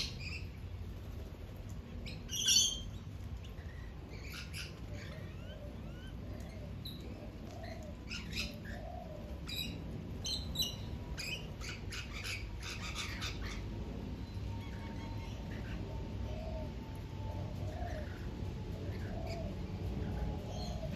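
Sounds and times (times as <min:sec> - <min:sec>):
low background rumble: 0:00.0 - 0:20.9
parrots screeching: 0:11.2 - 0:13.7.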